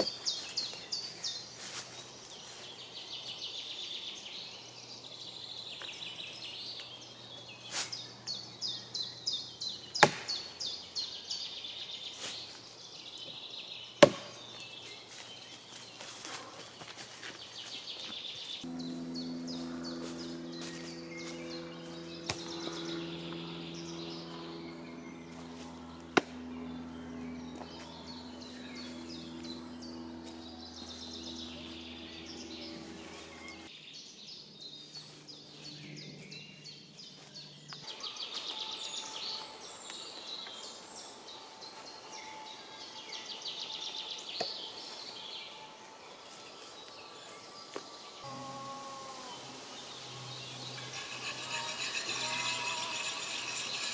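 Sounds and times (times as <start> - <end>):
songbirds singing: 0.0 - 53.9
steady low hum: 18.6 - 33.7, 48.0 - 53.9.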